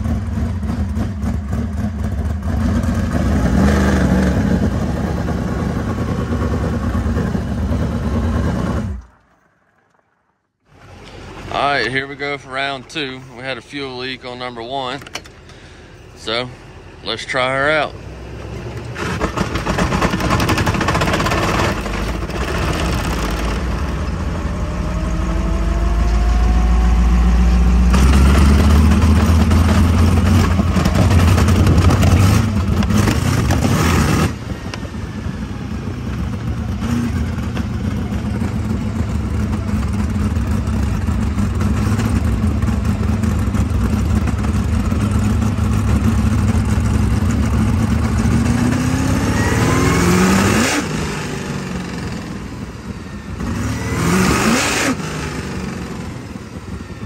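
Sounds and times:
race car engine firing up: 0:18.4 - 0:57.0.

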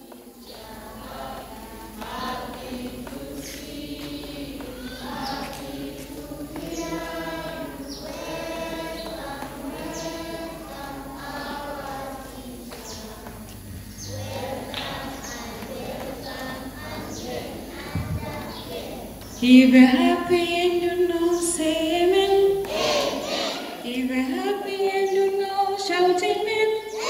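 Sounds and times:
congregation singing: 0:00.0 - 0:27.0.

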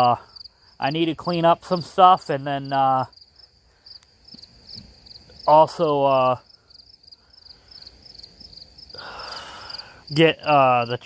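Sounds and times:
man speaking: 0:00.0 - 0:03.1, 0:05.4 - 0:06.5, 0:10.1 - 0:11.0
crickets chirping: 0:00.0 - 0:11.0.

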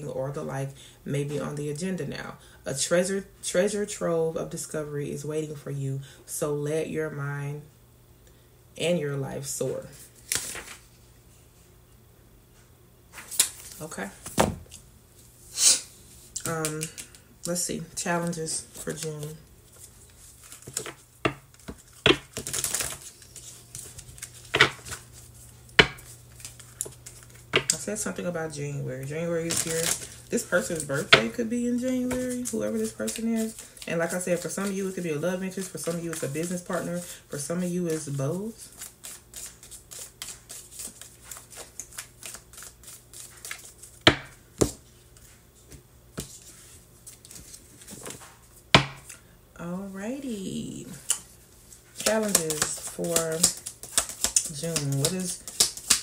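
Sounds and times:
cards sliding rustle: 0:10.1 - 0:11.1, 0:15.6 - 0:27.8, 0:38.7 - 0:45.4, 0:51.9 - 0:56.0
cards clacking together: 0:16.4 - 0:17.2, 0:20.4 - 0:23.6, 0:24.3 - 0:25.0, 0:52.0 - 0:56.0
cards tapping on table: 0:20.7 - 0:22.8, 0:24.5 - 0:25.0, 0:25.8 - 0:26.1, 0:44.1 - 0:44.8.

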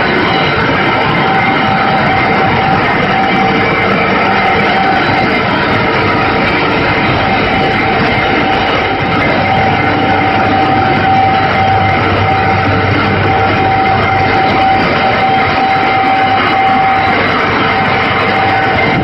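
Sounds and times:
constant machine whine: 0:00.0 - 0:19.0
machine mechanical drone: 0:00.0 - 0:19.0.

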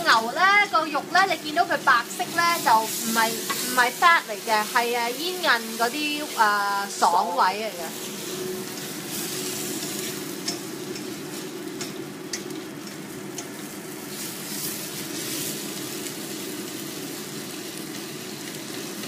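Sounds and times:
steady low hum: 0:00.0 - 0:15.2
meat sizzling in a wok: 0:00.0 - 0:19.0.

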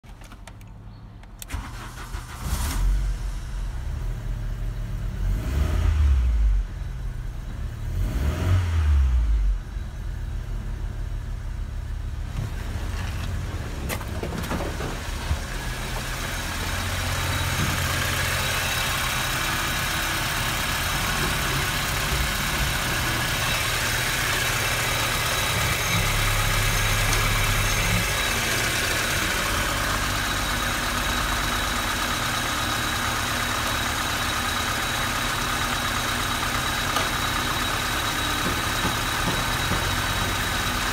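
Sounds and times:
car engine starting: 0:00.1 - 0:40.9
engine revving: 0:05.1 - 0:06.8, 0:07.8 - 0:09.6
car engine idling: 0:09.5 - 0:40.9.

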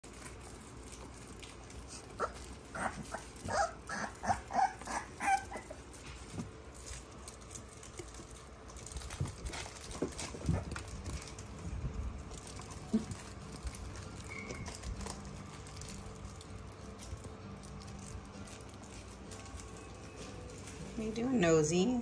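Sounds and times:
puppies yipping: 0:01.8 - 0:06.4
paws and toys thumping on carpet: 0:09.2 - 0:13.2.

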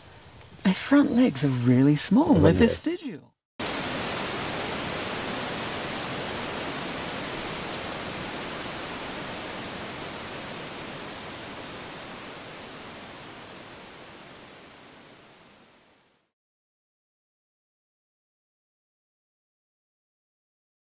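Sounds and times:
waterfall rushing: 0:03.6 - 0:14.9.

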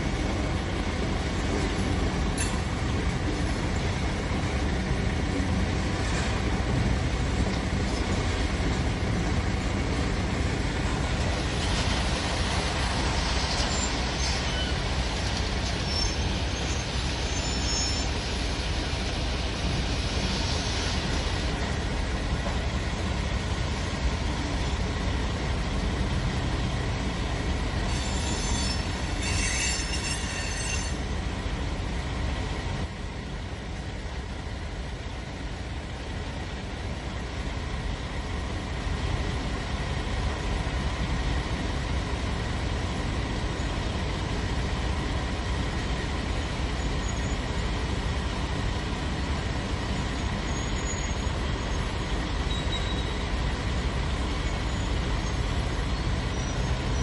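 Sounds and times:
rail cars rumbling on track: 0:00.0 - 0:57.0
train wheel squeal: 0:13.0 - 0:18.6, 0:27.8 - 0:31.2, 0:46.4 - 0:47.6, 0:49.9 - 0:53.4, 0:54.2 - 0:57.0.

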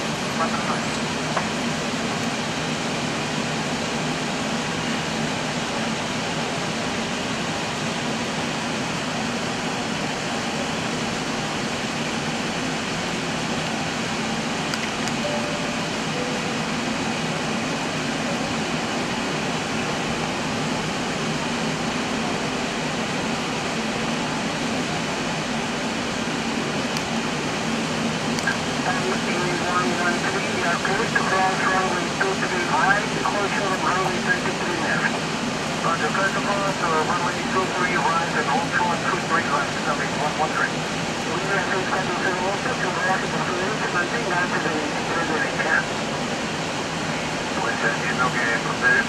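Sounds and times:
jet engines running: 0:00.0 - 0:49.0.

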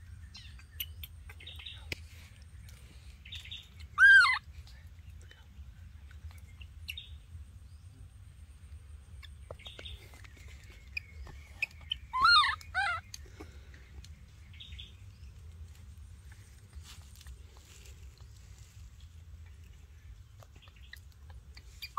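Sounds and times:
faint low hum: 0:00.0 - 0:21.9
high wavering animal calls: 0:03.8 - 0:04.5, 0:10.8 - 0:13.5.

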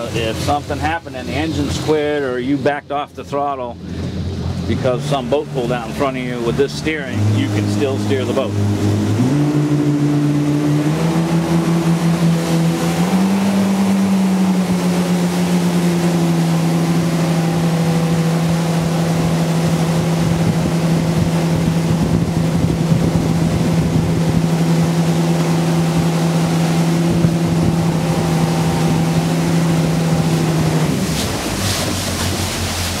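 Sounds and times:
jet boat engines running: 0:00.0 - 0:33.0
water and wind rushing: 0:00.0 - 0:33.0.

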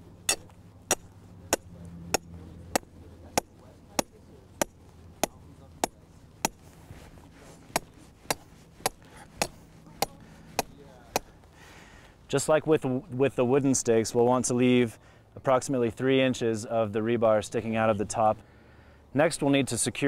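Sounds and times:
hammer striking steel stake: 0:00.2 - 0:06.8, 0:07.7 - 0:11.4.

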